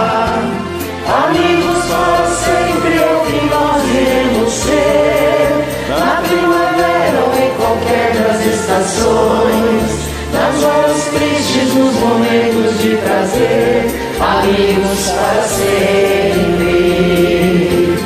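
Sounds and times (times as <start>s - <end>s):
karaoke backing track: 0.0s - 18.0s
people singing together: 0.0s - 18.0s.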